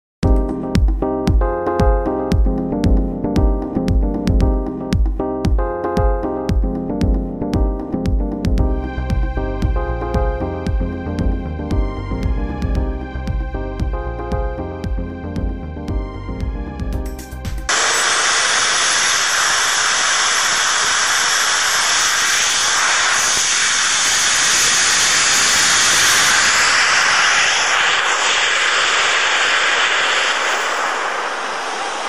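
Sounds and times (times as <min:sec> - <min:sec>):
small jet engine hissing and whining: 0:17.7 - 0:32.0.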